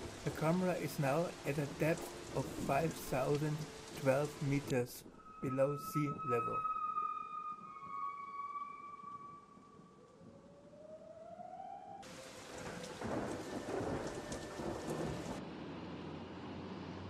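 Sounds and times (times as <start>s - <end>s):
rain-like rushing noise with rumbling: 0.0s - 6.5s, 12.0s - 17.0s
rising tone: 5.2s - 12.0s.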